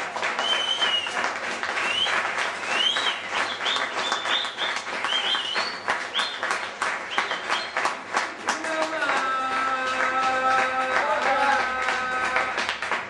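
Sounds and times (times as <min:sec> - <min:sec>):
audience applauding: 0:00.0 - 0:13.0
short high whistles: 0:00.4 - 0:01.2, 0:01.8 - 0:06.4.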